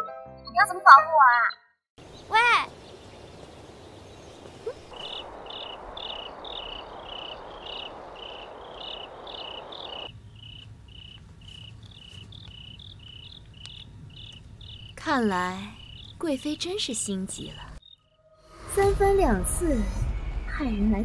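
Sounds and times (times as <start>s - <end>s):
crickets chirping: 2.0s - 19.0s
low hum: 17.6s - 21.0s.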